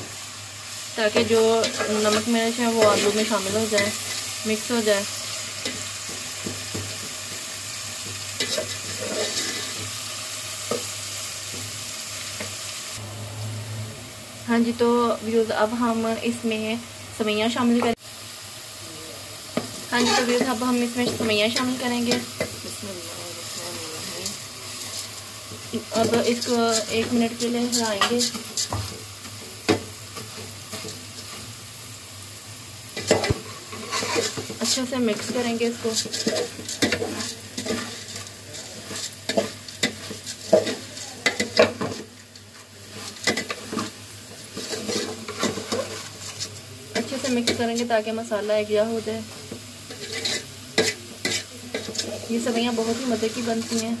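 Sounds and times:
vegetables sizzling in a pot: 0:00.0 - 0:54.0
metal spatula scraping pot: 0:08.3 - 0:09.9, 0:20.0 - 0:22.6, 0:25.7 - 0:28.9, 0:33.0 - 0:42.1, 0:42.9 - 0:47.6, 0:49.9 - 0:53.8
spoon scraping metal pot: 0:20.0 - 0:20.5, 0:33.0 - 0:38.3, 0:49.9 - 0:52.2.

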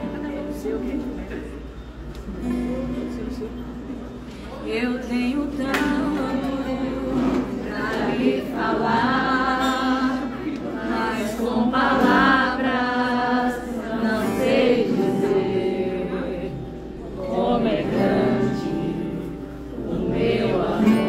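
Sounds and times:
strummed acoustic guitar: 0:00.0 - 0:04.3, 0:05.1 - 0:21.0
woman singing: 0:04.7 - 0:10.4
group of voices singing: 0:04.7 - 0:21.0.

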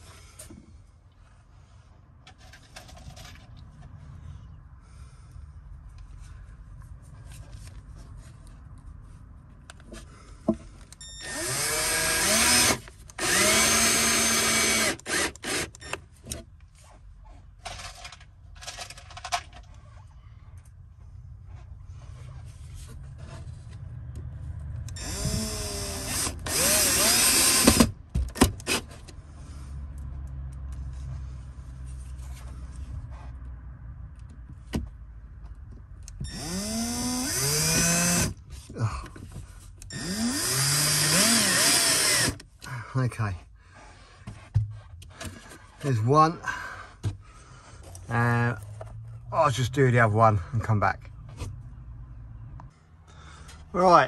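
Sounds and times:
drill motor whine: 0:11.0 - 0:16.0, 0:25.0 - 0:27.9, 0:36.2 - 0:38.3, 0:39.9 - 0:42.4.

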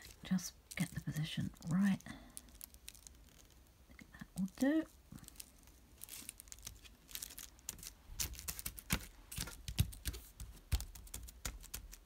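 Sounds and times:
paper crinkling: 0:00.0 - 0:12.0
fingers tapping on card: 0:08.6 - 0:12.0.

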